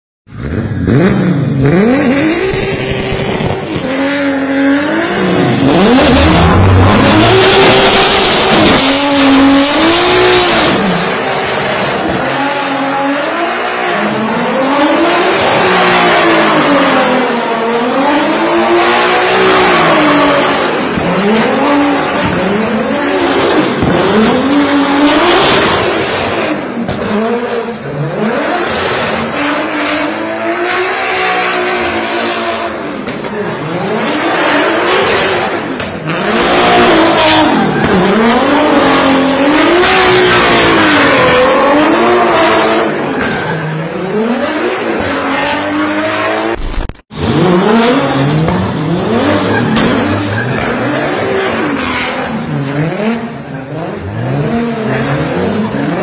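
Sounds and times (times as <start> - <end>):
car engine revving hard: 0.3 - 56.0
tyres squealing: 49.1 - 52.2.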